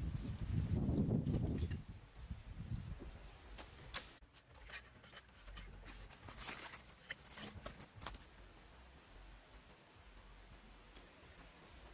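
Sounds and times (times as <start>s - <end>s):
bamboo poles clicking and creaking: 1.1s - 1.9s, 3.5s - 8.5s.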